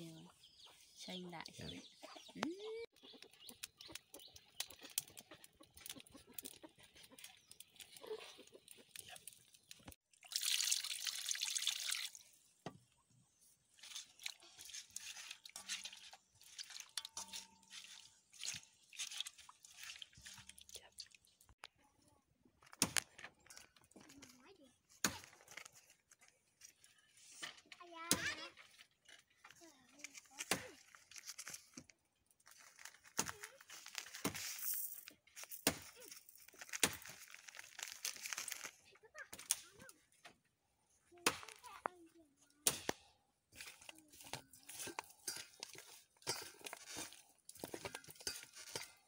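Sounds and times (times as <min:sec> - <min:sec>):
wet squelching and sloshing: 0:13.7 - 0:21.6
plastic packet crinkling: 0:36.1 - 0:38.8.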